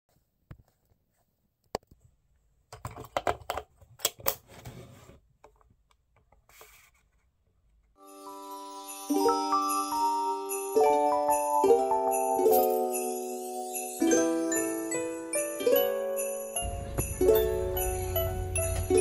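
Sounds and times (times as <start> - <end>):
plastic clicks and rattling: 2.7 - 4.4
christmas-style music with bells: 8.0 - 19.0.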